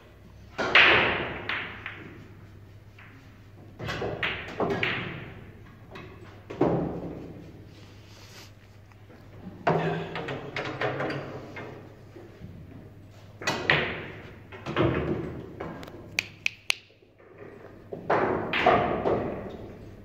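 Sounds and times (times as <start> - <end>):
pool balls clicking: 0.4 - 7.4, 9.0 - 12.4.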